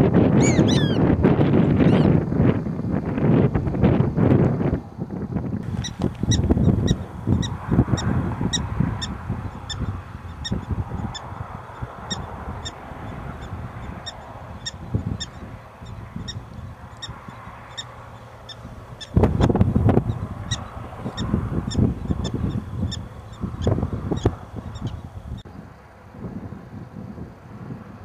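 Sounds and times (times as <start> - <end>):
prairie dog alarm chirps: 0.4 - 1.1, 1.7 - 2.2.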